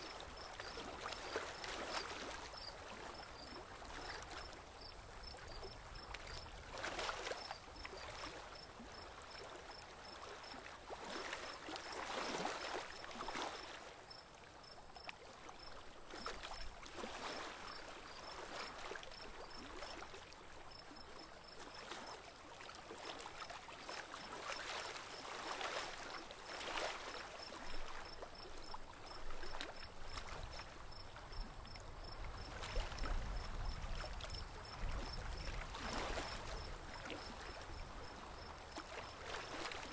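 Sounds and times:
water lapping against boat hull: 0.0 - 39.9.

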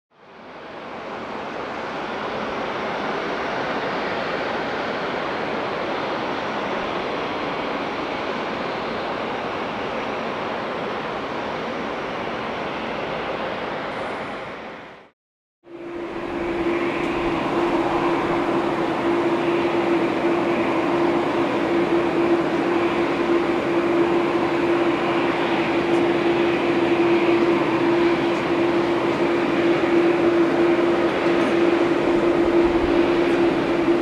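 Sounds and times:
distant jet engines roaring: 15.7 - 34.0.

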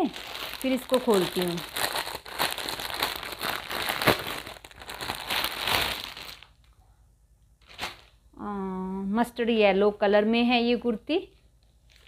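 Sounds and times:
plastic packaging crinkling: 0.0 - 6.8, 7.6 - 8.2, 11.4 - 12.0.

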